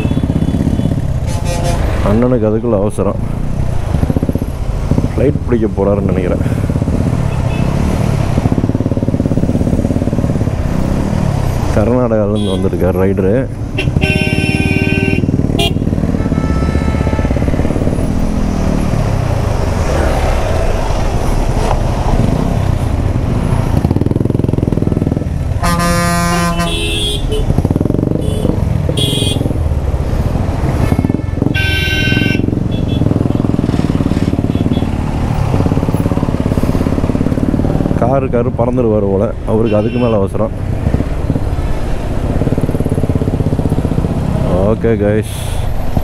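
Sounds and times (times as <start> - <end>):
motorcycle engine running: 0.0 - 1.3, 6.4 - 11.5, 13.7 - 19.3, 23.4 - 29.9, 30.6 - 38.2, 40.6 - 44.7
vehicle horns honking: 0.0 - 2.0, 7.3 - 7.8, 13.8 - 17.6, 25.6 - 27.5, 28.2 - 29.5, 30.6 - 33.6, 34.4 - 35.0, 39.6 - 40.3
road noise: 0.0 - 46.0.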